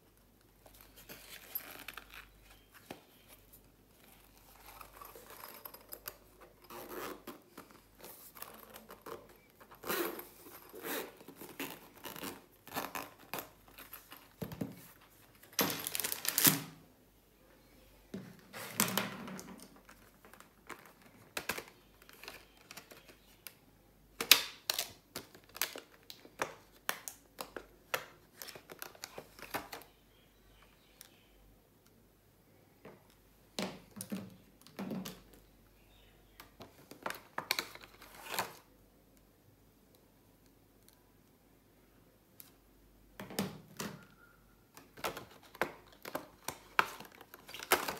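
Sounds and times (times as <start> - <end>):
plastic packaging crinkling: 15.5 - 16.6.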